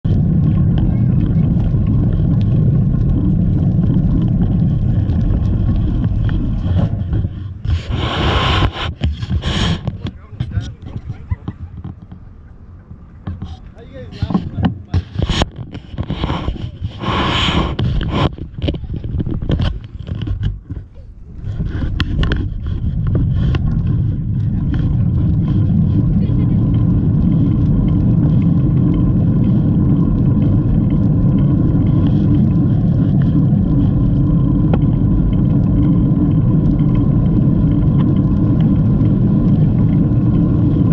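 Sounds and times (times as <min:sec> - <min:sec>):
tyres rolling on dirt path: 0:00.0 - 0:17.0, 0:17.8 - 0:40.9
wind buffeting microphone: 0:00.0 - 0:40.9
hissing scraping noise: 0:04.7 - 0:10.8, 0:13.3 - 0:20.5
camera handling clicks and scrapes: 0:14.3 - 0:20.9.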